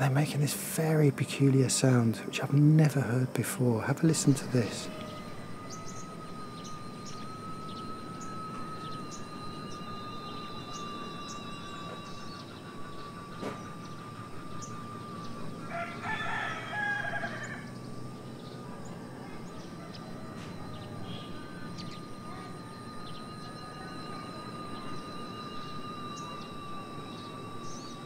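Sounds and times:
whistling hum of birds: 0.0s - 28.0s
rooster crowing: 4.8s - 27.5s.

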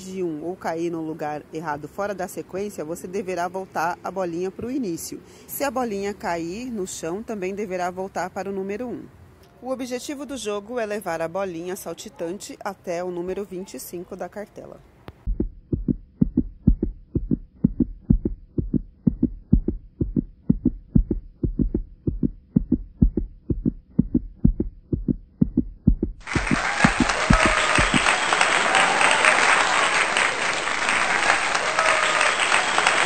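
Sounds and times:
dull low thumps: 15.2s - 28.1s
applause and cheering: 26.2s - 33.0s.

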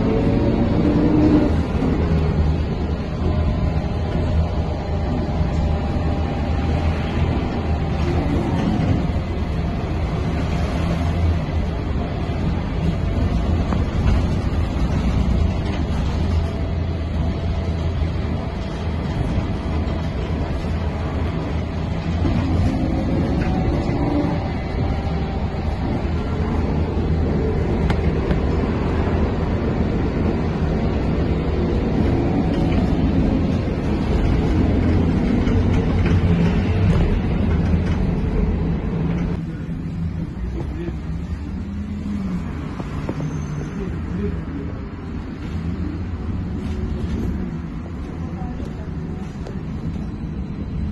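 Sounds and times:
trolleybus rumbling: 0.0s - 50.9s.

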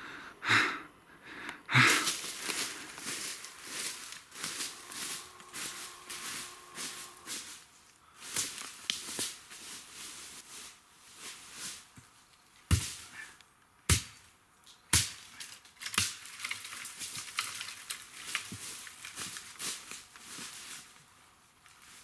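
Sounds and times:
footsteps in dry leaves: 1.8s - 12.0s, 16.7s - 22.0s
machete chopping woody stem: 12.7s - 13.0s, 13.9s - 14.2s, 14.9s - 15.2s.

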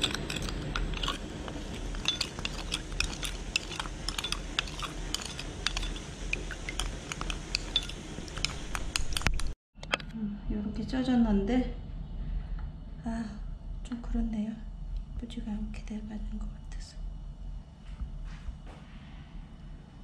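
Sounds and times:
wooden spoon scraping glass bowl: 0.0s - 9.5s.

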